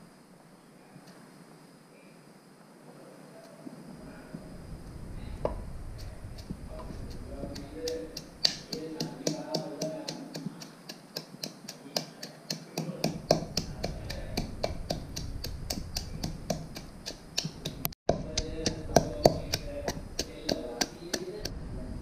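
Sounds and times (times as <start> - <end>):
pestle pounding in mortar: 6.4 - 21.5.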